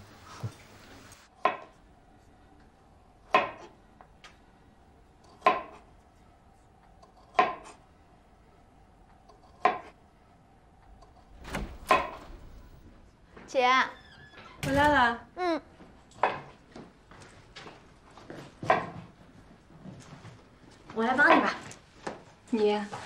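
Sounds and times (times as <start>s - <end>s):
knife chopping on wooden board: 5.4s - 5.8s, 7.2s - 7.8s.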